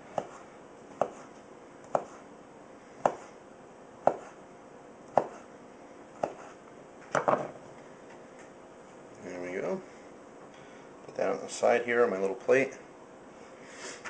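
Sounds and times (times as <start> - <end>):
knife slicing sausage: 0.0 - 2.3, 4.0 - 4.4, 6.2 - 6.6.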